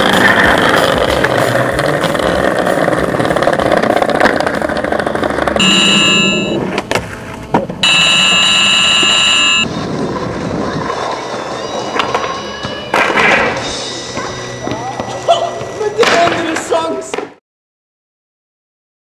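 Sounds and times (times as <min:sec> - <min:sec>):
skateboard wheels rolling on asphalt: 0:00.0 - 0:08.4, 0:09.6 - 0:17.3
high electronic beep: 0:05.6 - 0:06.7, 0:07.8 - 0:09.7.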